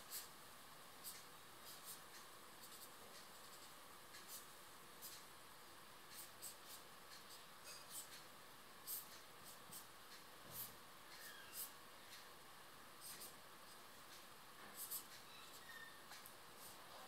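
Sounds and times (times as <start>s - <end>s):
steady low hiss: 0.0s - 17.0s
marker scratching on paper: 0.1s - 0.3s, 1.0s - 2.0s, 2.6s - 5.2s, 6.1s - 8.2s, 8.9s - 11.8s, 13.0s - 13.4s, 14.7s - 15.8s.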